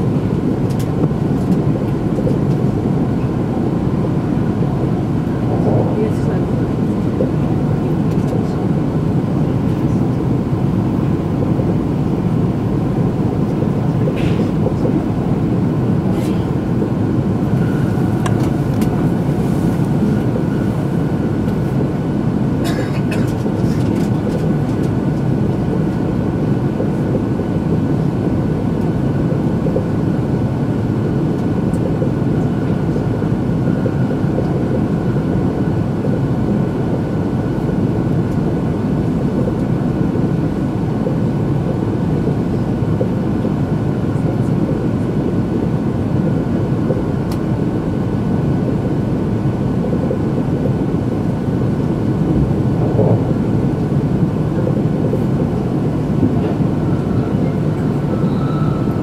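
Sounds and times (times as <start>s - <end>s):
train cabin running rumble: 0.0s - 59.0s
faint steady high tone: 57.0s - 59.0s.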